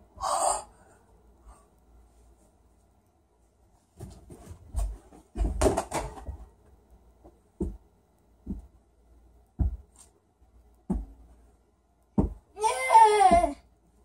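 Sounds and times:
ball thumping on door and floor: 4.0s - 6.4s, 7.6s - 7.8s, 9.6s - 10.0s, 10.9s - 11.2s, 12.1s - 12.5s, 13.2s - 13.6s.

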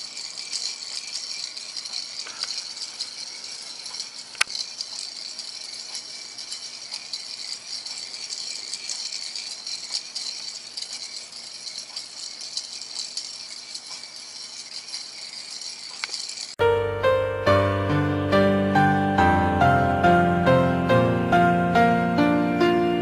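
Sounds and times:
gears clicking as they turn: 0.0s - 16.6s.

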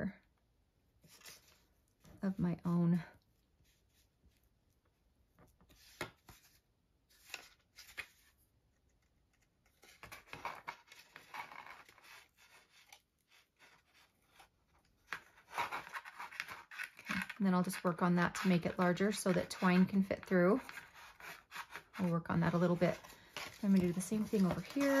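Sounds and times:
scraping of paper: 9.7s - 14.5s, 15.1s - 25.0s.

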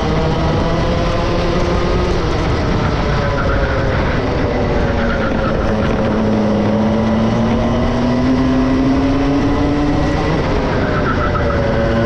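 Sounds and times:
two-stroke kart engine revving: 0.0s - 12.0s.

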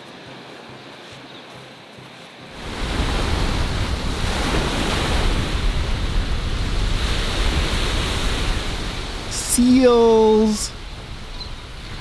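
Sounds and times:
small waves breaking on sand: 0.0s - 12.0s
wind rumbling on microphone: 2.5s - 12.0s.

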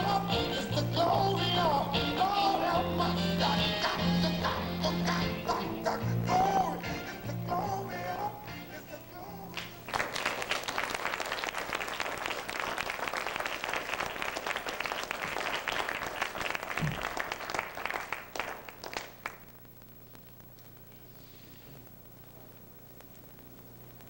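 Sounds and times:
audience applause: 9.6s - 19.5s.

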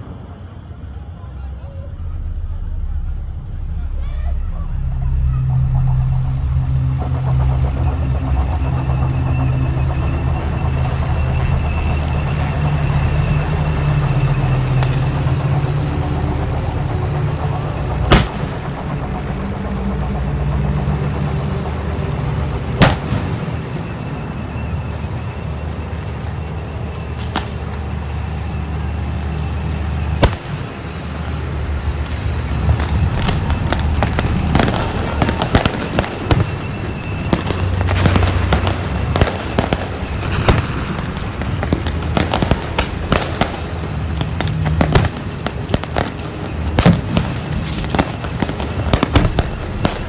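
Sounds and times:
heavy vehicle engine running: 0.0s - 50.0s
blank-fire bangs: 7.6s - 19.5s, 30.2s - 31.0s, 31.9s - 50.0s.

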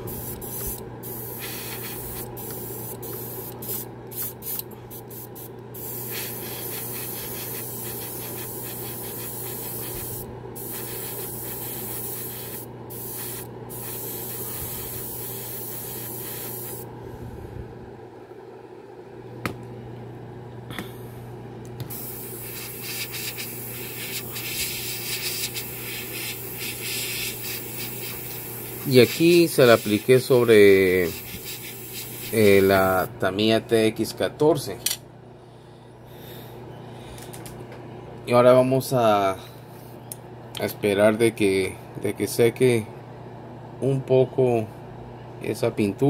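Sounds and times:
airbrush spraying hiss: 0.0s - 16.9s, 21.9s - 33.1s
air compressor humming: 0.0s - 17.8s, 20.7s - 34.0s.

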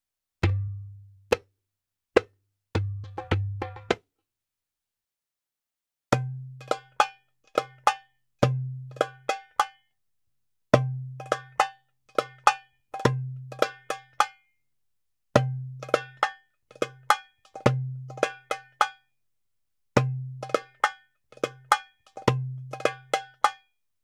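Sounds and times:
percussive music loop: 2.2s - 4.0s.

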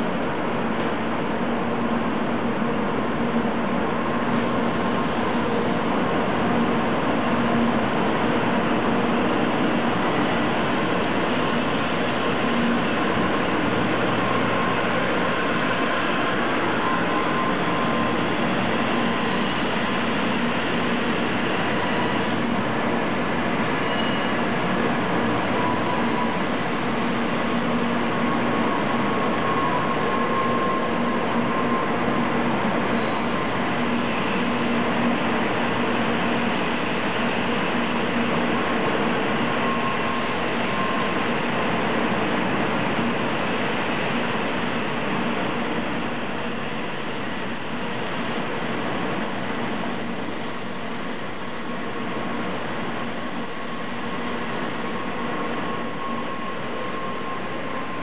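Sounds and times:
train rolling noise: 0.0s - 58.0s
faint steady tones: 52.2s - 58.0s.

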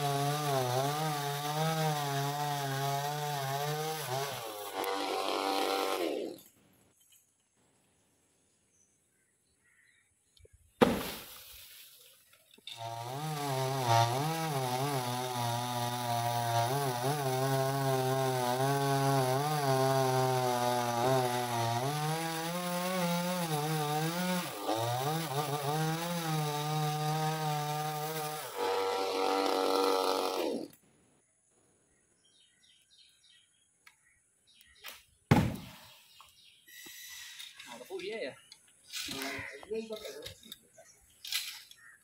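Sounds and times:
chainsaw cutting wood: 0.0s - 6.5s, 12.7s - 30.8s
heavy thud: 35.3s - 35.8s.

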